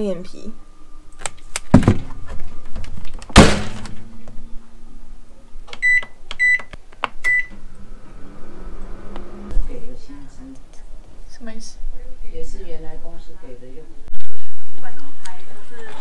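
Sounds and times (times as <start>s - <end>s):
microwave low hum: 0.0s - 12.6s.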